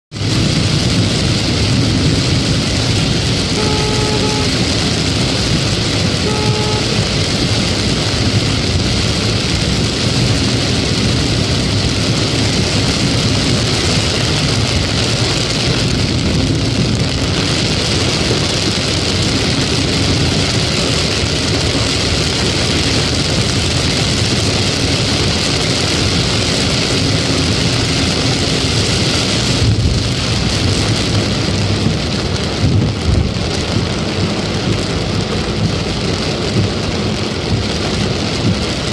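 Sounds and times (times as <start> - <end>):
car engine noise: 0.1 - 38.9
heavy rain on a car: 0.1 - 38.9
tyre hiss on wet road: 0.2 - 38.9
short beeps: 3.6 - 4.5, 6.2 - 7.0.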